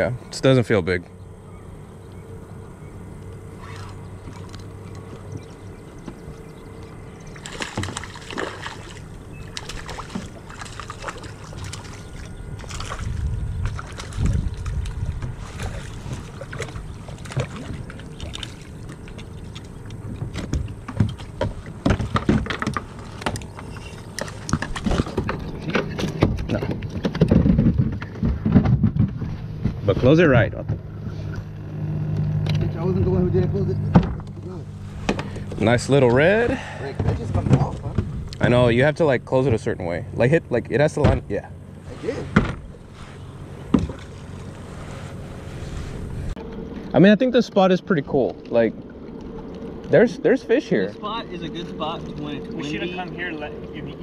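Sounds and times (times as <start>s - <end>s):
water sloshing: 3.2s - 29.9s, 34.0s - 54.0s
knocks and rattles against plastic kayak: 20.0s - 30.9s, 37.0s - 38.2s, 42.3s - 42.8s, 43.6s - 44.3s.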